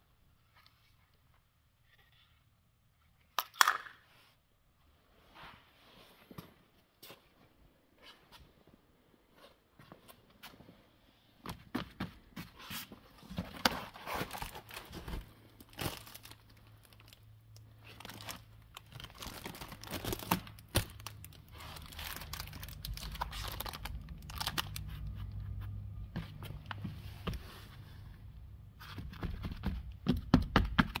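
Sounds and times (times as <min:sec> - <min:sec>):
crinkling and rustling: 0:05.2 - 0:31.0.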